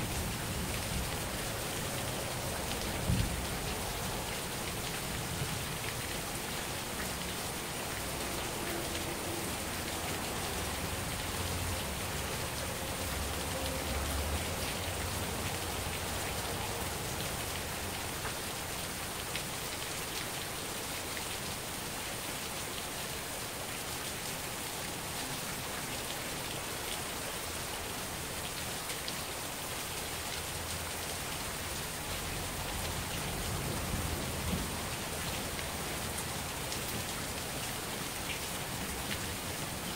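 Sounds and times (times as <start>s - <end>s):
heavy rain pattering: 0.0s - 39.9s.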